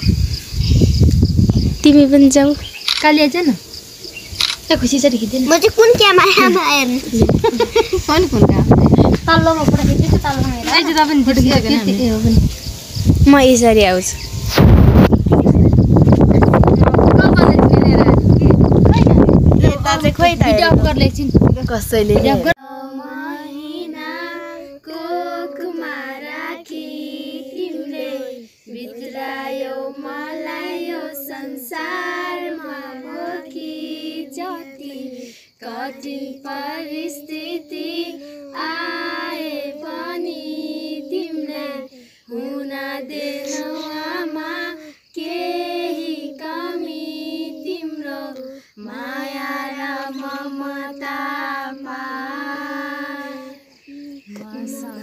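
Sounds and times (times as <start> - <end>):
children and women singing: 22.2 - 55.0.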